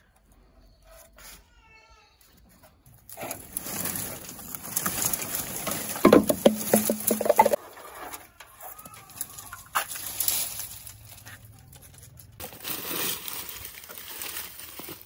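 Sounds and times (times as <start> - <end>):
dry branches rustling and scraping: 2.6 - 15.0.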